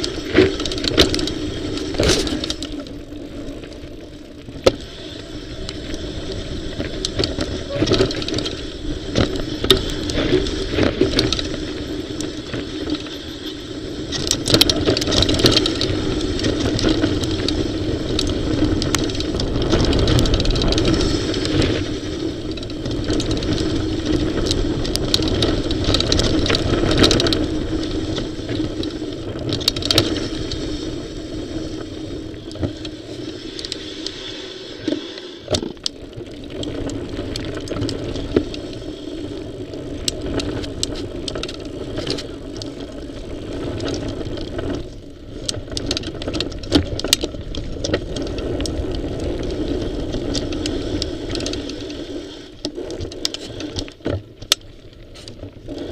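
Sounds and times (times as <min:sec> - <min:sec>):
bike rattling and knocking: 0:00.0 - 0:04.8, 0:06.0 - 0:30.6
bike tyres rumbling on trail: 0:00.0 - 0:55.9.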